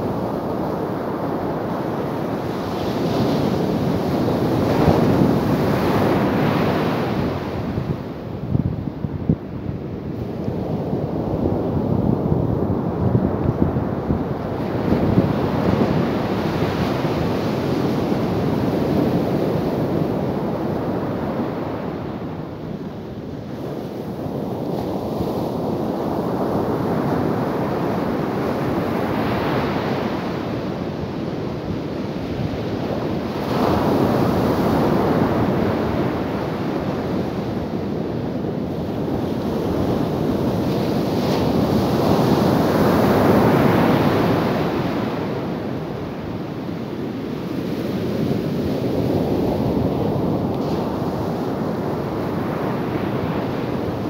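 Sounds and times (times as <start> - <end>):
waves crashing on a beach: 0.0 - 54.0.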